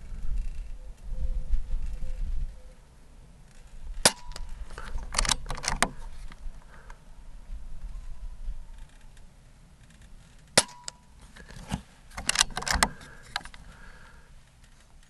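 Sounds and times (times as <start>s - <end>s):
rifle action clicks and clacks: 4.0s - 6.0s, 11.6s - 13.6s.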